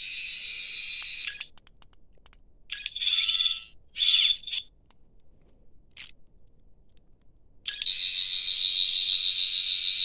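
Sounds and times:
warbling electronic bursts: 7.7 - 10.0.

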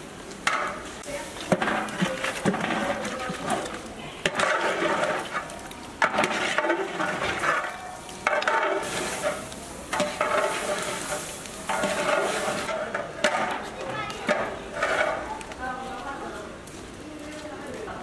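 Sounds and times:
curry sizzling in pot: 0.0 - 16.6
metal ladle scraping pot: 1.4 - 15.4.

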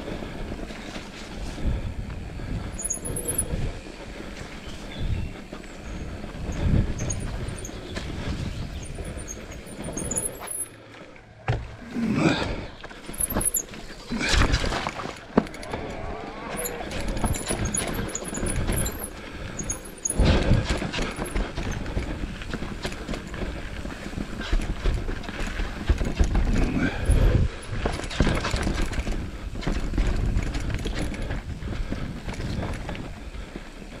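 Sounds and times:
bike frame and chain rattling: 0.0 - 10.8, 13.0 - 34.0
wheels thumping over bumps: 11.4 - 33.8.

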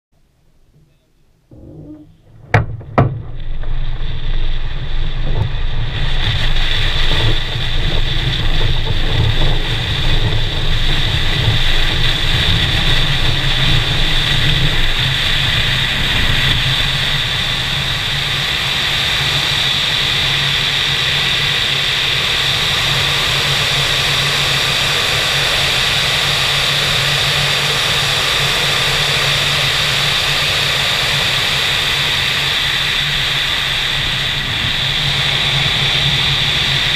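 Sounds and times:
sharp knocks: 1.5 - 4.4.

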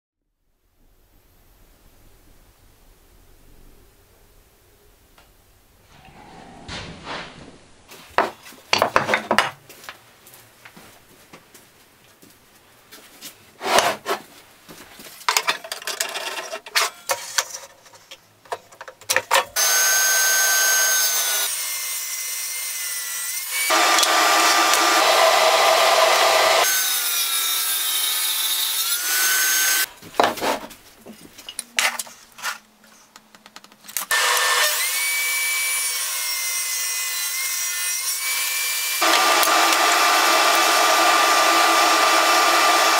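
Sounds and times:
wooden blocks knocking on workbench: 8.2 - 9.6
table saw cutting wood: 19.6 - 29.9, 34.1 - 42.9.

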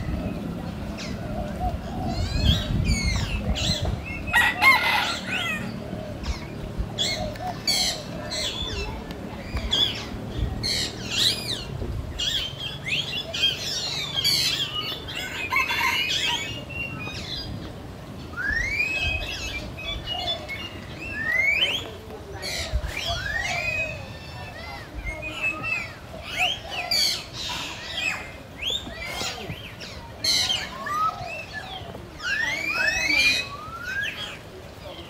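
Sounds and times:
birds chirping and trilling: 0.0 - 35.0
rising whistled bird call: 18.3 - 19.6.

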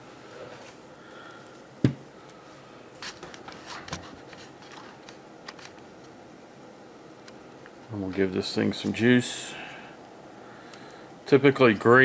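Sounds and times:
wires handling clicks and rustles: 1.4 - 6.2.

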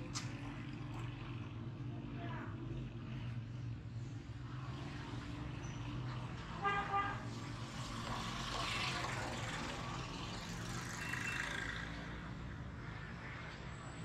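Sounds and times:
street din: 0.0 - 1.4, 5.6 - 12.4
motorcycle engines passing: 0.0 - 14.0.

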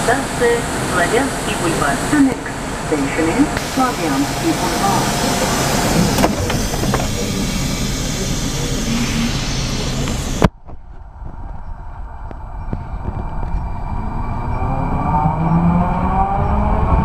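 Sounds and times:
platform and ventilation noise: 0.0 - 17.0
train hum: 0.0 - 17.0
train doors thudding shut: 4.8 - 7.6.

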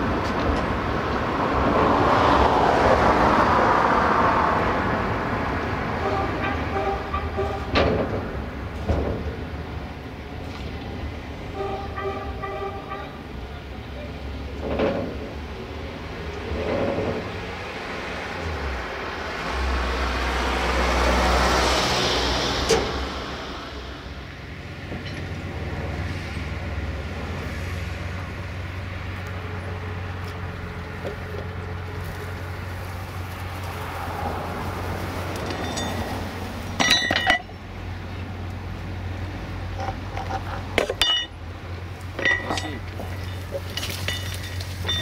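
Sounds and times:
engine humming: 0.0 - 45.0
sharp metallic clinks: 35.5 - 36.2, 36.8 - 37.6, 40.9 - 41.4, 42.2 - 45.0.

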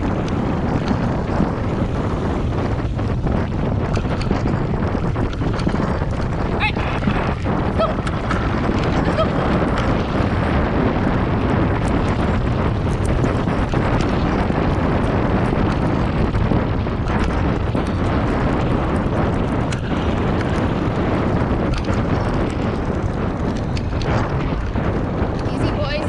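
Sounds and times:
bicycle tyres rolling on dirt: 0.0 - 26.0
wind buffeting microphone: 0.0 - 26.0.

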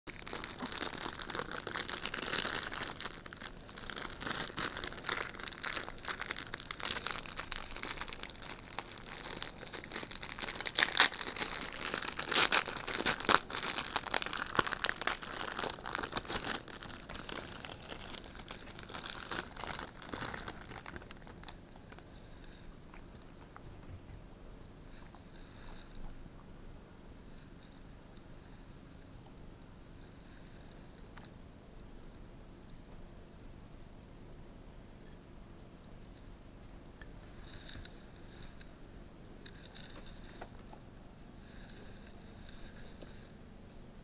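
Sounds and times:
plastic bag crinkling: 0.1 - 22.2.

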